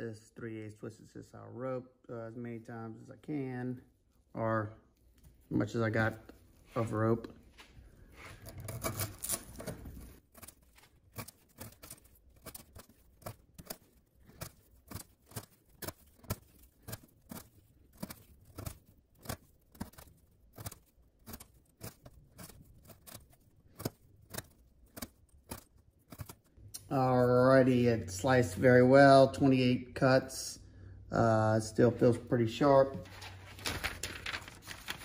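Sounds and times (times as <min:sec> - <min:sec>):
knife cutting through rope: 0:08.2 - 0:26.5.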